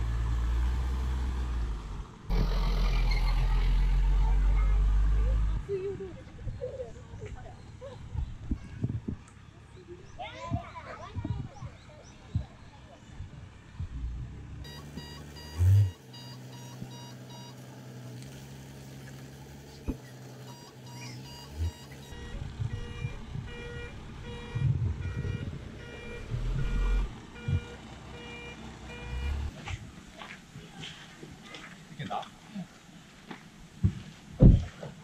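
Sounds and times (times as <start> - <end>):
low engine running: 0.0 - 6.2, 13.8 - 29.6
back-up alarm beeping: 14.6 - 17.9, 20.4 - 29.5.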